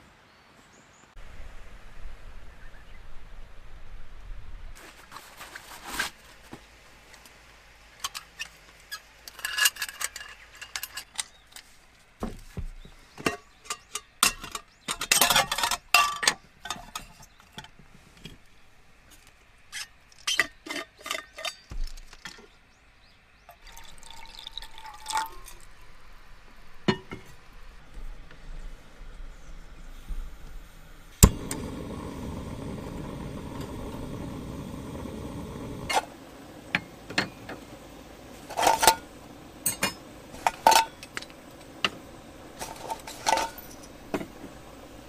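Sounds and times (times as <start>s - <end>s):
metal camp gear clicking and clinking: 8.0s - 11.7s, 13.2s - 18.4s, 19.8s - 22.5s, 38.5s - 42.0s, 42.6s - 44.4s.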